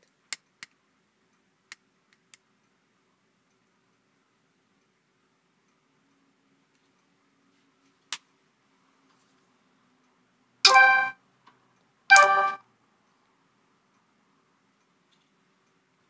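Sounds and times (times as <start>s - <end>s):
short ringing electronic tones: 10.7s - 11.2s, 12.1s - 12.6s.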